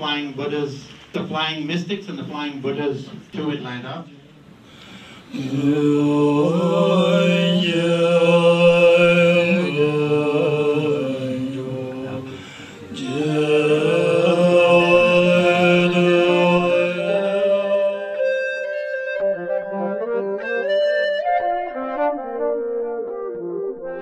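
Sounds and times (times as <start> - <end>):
monks chanting: 5.3 - 18.2.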